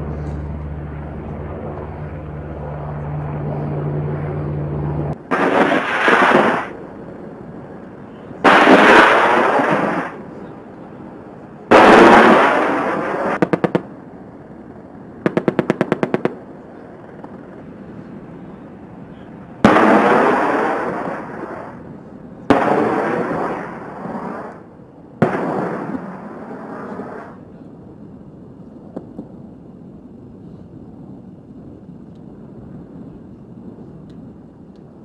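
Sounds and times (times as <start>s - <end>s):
loud rocket fire blasts: 5.1s - 7.0s, 8.3s - 10.6s, 11.7s - 14.0s, 15.2s - 17.7s, 19.6s - 27.4s.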